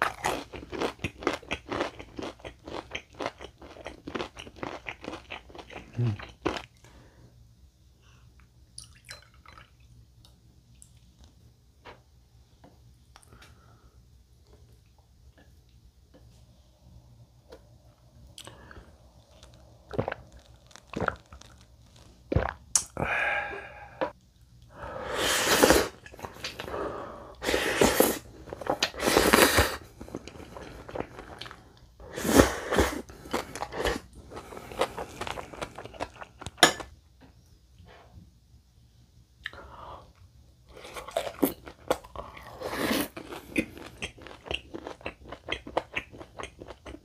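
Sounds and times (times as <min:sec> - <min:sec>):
chewing: 0:00.0 - 0:06.9, 0:18.3 - 0:22.1, 0:33.1 - 0:36.6, 0:40.8 - 0:47.0
noodles slurping: 0:27.4 - 0:36.4.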